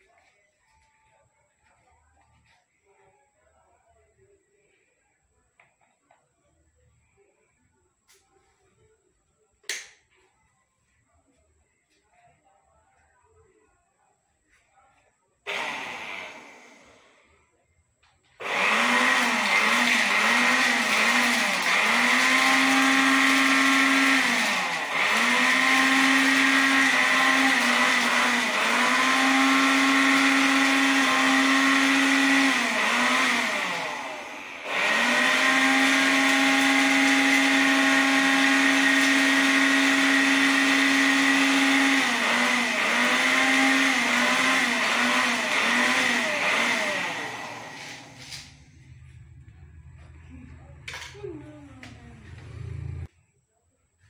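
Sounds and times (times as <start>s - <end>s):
vacuum motor whining: 15.5s - 17.2s, 18.4s - 50.6s, 51.7s - 53.1s.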